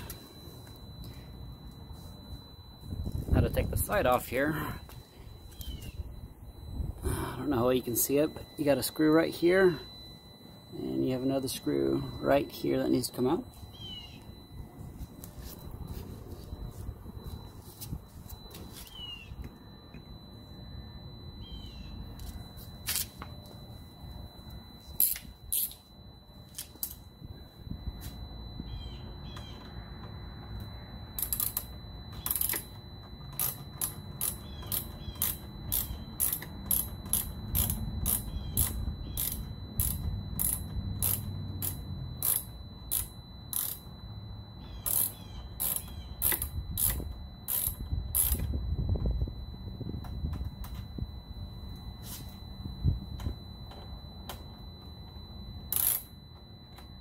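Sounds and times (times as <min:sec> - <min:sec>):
ratcheting hand tool clicking: 0:25.0 - 0:25.8, 0:31.2 - 0:32.6, 0:33.3 - 0:43.8, 0:44.8 - 0:48.5, 0:55.7 - 0:56.1.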